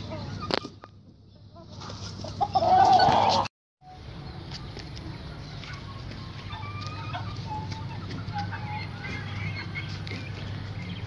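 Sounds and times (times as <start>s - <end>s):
chickens clucking: 0.0s - 3.5s, 4.5s - 11.0s.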